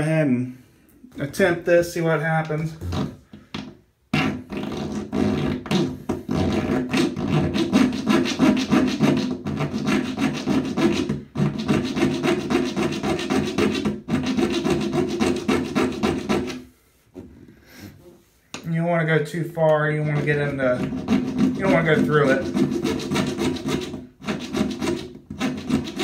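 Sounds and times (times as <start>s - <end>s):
hacksaw rasping on metal: 20.2s - 26.0s.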